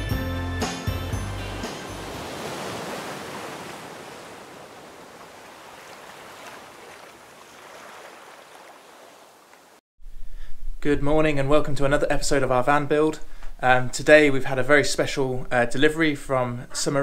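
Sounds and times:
ocean surf washing: 1.2s - 9.8s.

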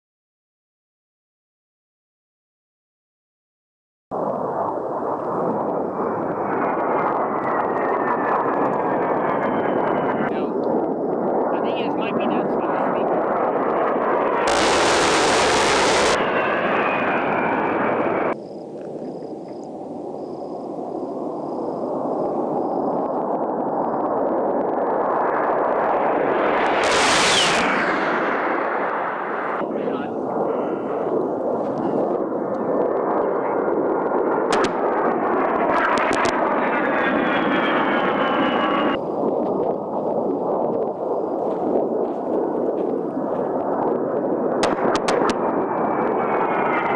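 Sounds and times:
approaching jet rumble: 4.2s - 46.9s
jet engine rush: 4.2s - 46.9s
high whine falling in pitch: 14.1s - 19.6s, 21.4s - 31.8s
sharp cracks: 14.4s - 16.2s, 26.4s - 29.0s, 34.5s - 35.1s, 44.6s - 45.6s.

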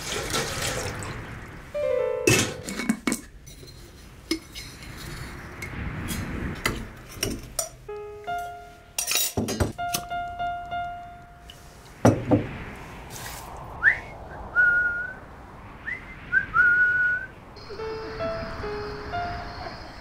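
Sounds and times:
soft piano music: 1.8s - 2.9s, 7.8s - 12.0s, 17.6s - 20.0s
whistled rising notes: 13.6s - 20.0s.

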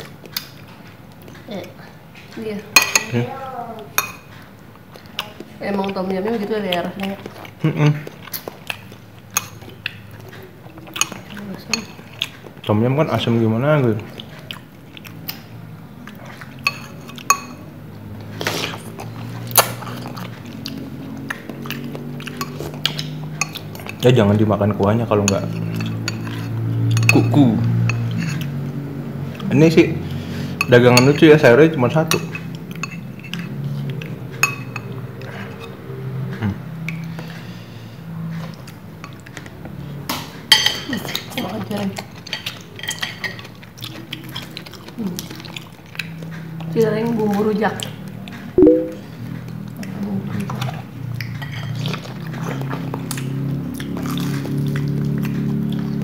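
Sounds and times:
spoons clinking against bowls: 2.8s - 3.2s, 4.0s - 4.3s, 16.6s - 17.6s, 22.4s - 24.0s, 25.2s - 28.5s, 30.6s - 31.3s, 32.0s - 33.5s, 34.4s - 35.0s, 40.5s - 41.5s, 42.3s - 43.5s, 51.3s - 51.8s
noodles slurped and chewed: 4.3s - 12.7s, 14.0s - 17.3s, 18.0s - 24.1s, 41.0s - 48.5s, 49.5s - 56.0s
low steady hum: 48.6s - 49.3s.

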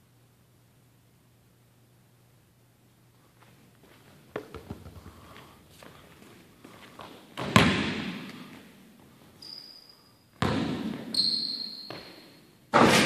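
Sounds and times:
basketball bouncing on hardwood: 4.4s - 5.1s, 7.4s - 8.2s, 10.4s - 11.1s
sneakers squeaking on floor: 9.2s - 12.6s.

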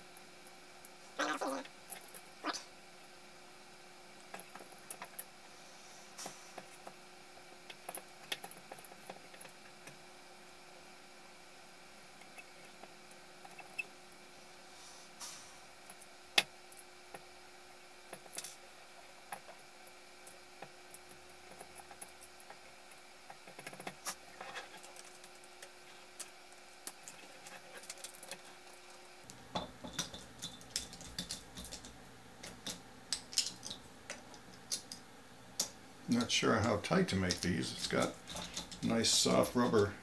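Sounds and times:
small parts clicking and tapping: 4.2s - 5.3s, 6.2s - 10.0s, 18.1s - 35.0s, 35.6s - 39.9s.

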